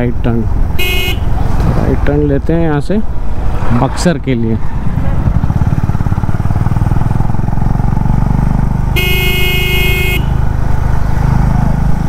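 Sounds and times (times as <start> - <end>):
vehicle horn: 0.8 - 1.3, 8.9 - 10.4
motorcycle engine running: 4.7 - 12.0.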